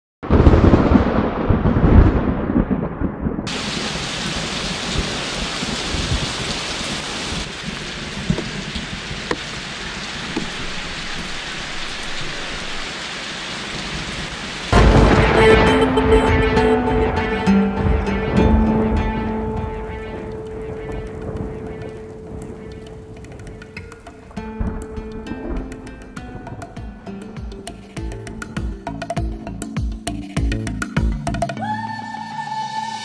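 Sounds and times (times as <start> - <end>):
thunder rumbling: 0.2 - 27.3
rain hissing: 3.5 - 28.6
music with sustained tones: 14.8 - 22.7.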